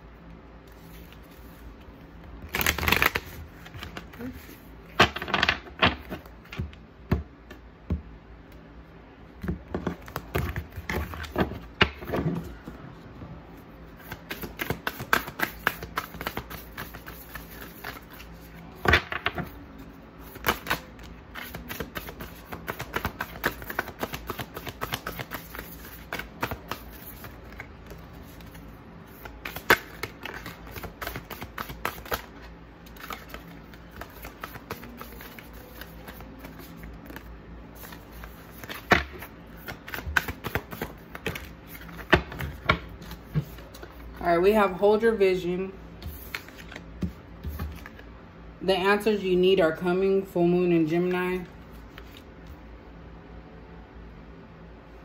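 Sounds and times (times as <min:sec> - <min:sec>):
cards being shuffled: 0:02.4 - 0:06.7, 0:13.9 - 0:19.6, 0:20.2 - 0:44.1, 0:46.0 - 0:48.0, 0:51.7 - 0:52.3.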